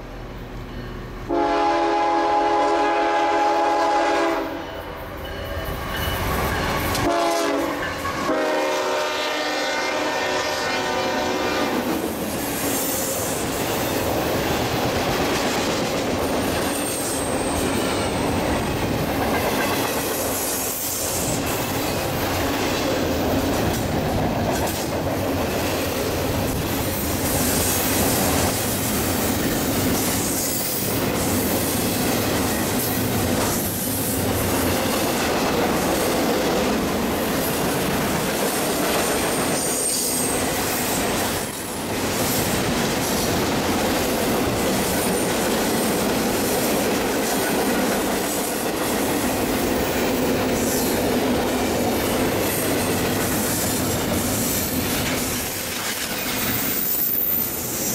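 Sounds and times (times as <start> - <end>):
freight train rumble and wheel clatter: 0.0 - 57.9
locomotive horn blasts: 1.3 - 4.8, 6.9 - 11.8
high wheel squeal: 56.1 - 57.9.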